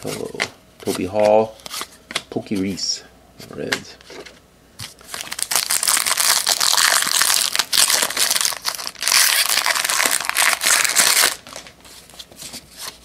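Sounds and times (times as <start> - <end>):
foil wrapper crinkling and tearing: 5.0 - 11.8.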